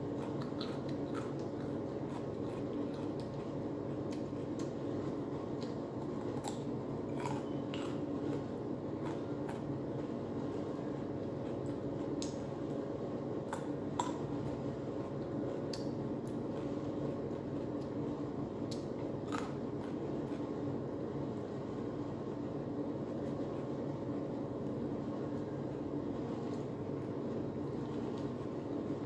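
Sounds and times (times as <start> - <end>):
person chewing bread: 0.0 - 10.3, 18.6 - 20.7.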